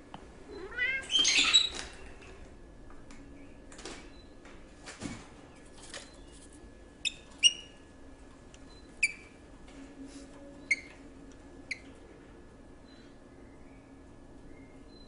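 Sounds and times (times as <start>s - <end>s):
faint steady hum: 0.0s - 15.0s
small bird chirping: 7.0s - 7.8s, 8.7s - 9.3s.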